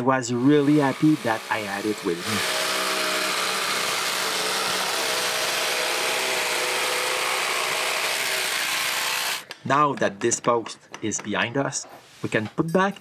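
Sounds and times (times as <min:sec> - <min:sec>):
power tool motor whirring: 0:00.4 - 0:09.5.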